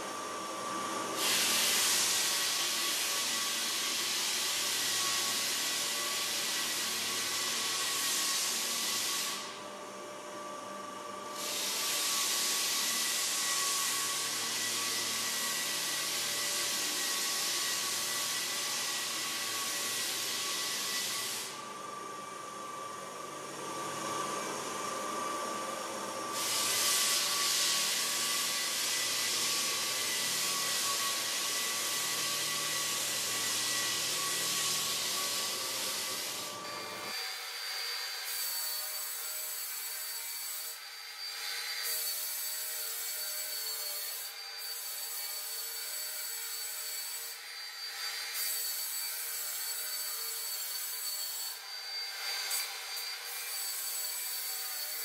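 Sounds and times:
floor sander motor whining: 0.0 - 38.9.

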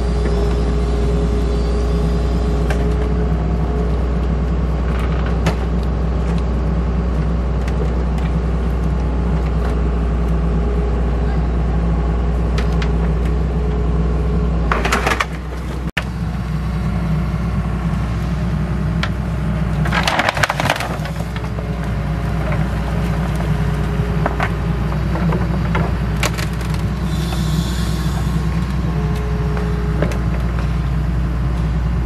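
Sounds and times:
excavator diesel engine running: 0.0 - 32.0
timber creaking and cracking: 19.8 - 27.4.

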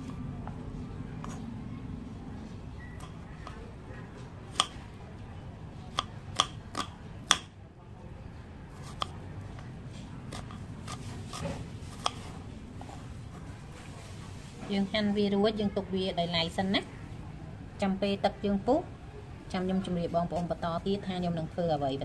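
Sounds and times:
steady low hum: 0.0 - 15.1.

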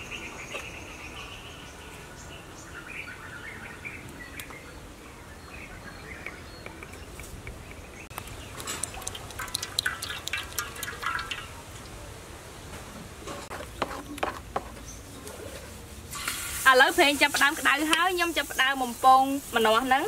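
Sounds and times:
oil pouring into wok: 8.6 - 12.0.

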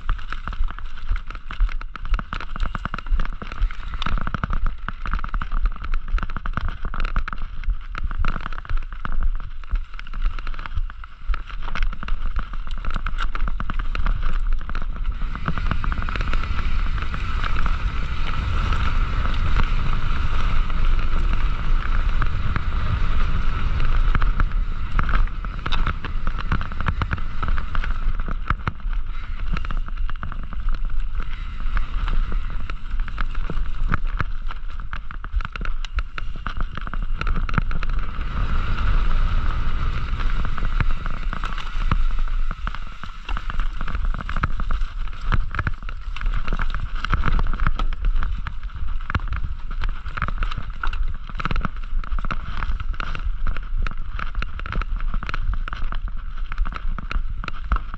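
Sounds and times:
bike rattling over bumps: 0.0 - 57.9
wind buffeting microphone: 11.8 - 55.7.

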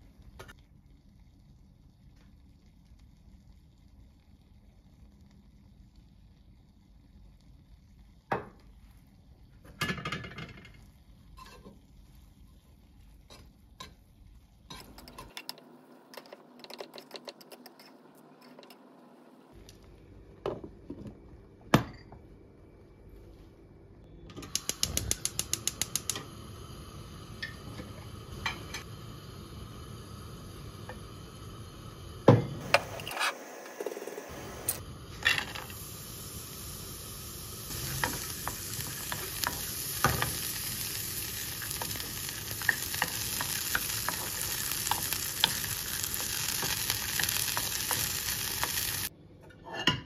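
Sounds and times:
steady hum: 18.0 - 49.4.

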